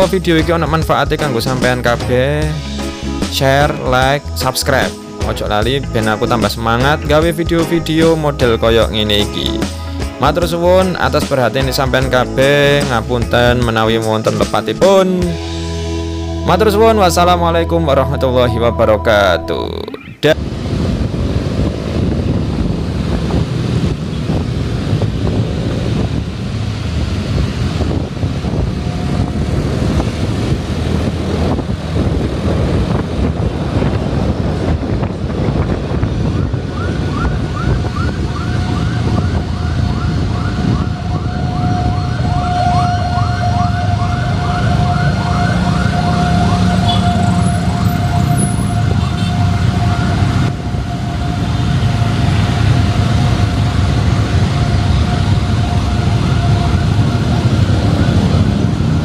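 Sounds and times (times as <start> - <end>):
traffic rumble: 0.0 - 59.0
wind: 0.0 - 59.0
siren: 36.4 - 59.0.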